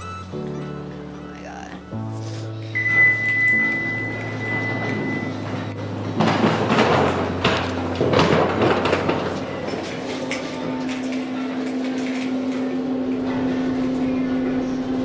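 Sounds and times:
elevator chime: 0.0s - 6.2s
lift doors sliding: 0.0s - 15.0s
suitcase wheels rattling: 2.8s - 11.3s.

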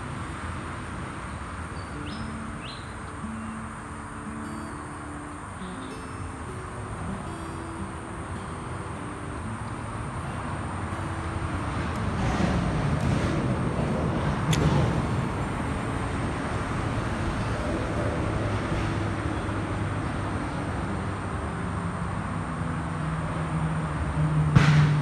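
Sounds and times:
road vehicle passing: 0.0s - 4.4s, 6.2s - 25.0s
sharp click: 14.5s - 14.9s.

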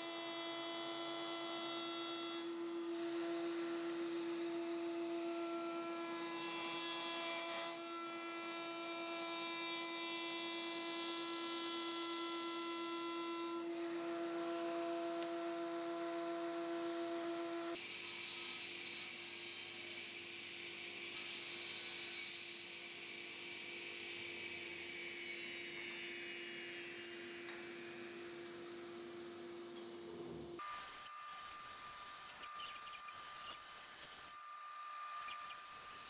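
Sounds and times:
router whining: 30.6s - 36.0s
saw cutting wooden blocks: 30.6s - 36.0s.

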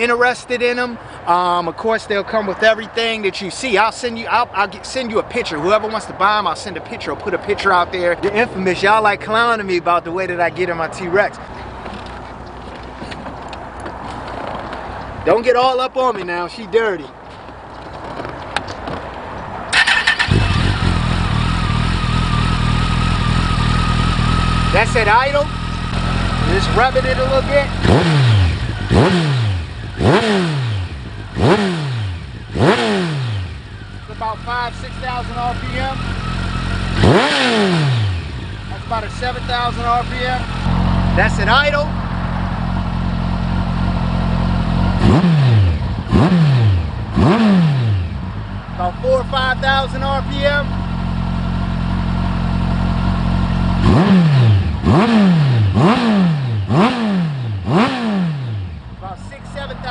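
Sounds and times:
motorcycle engine idling: 19.8s - 59.9s.

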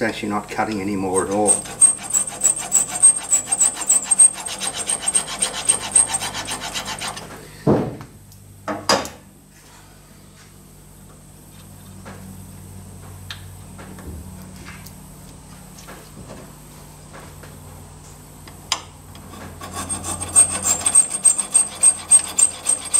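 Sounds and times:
file rubbing on metal rod: 1.1s - 7.3s, 19.4s - 22.9s.

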